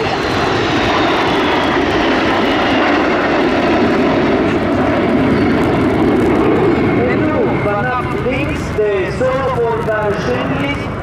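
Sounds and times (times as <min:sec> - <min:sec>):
jet aircraft flying past: 0:00.0 - 0:11.0.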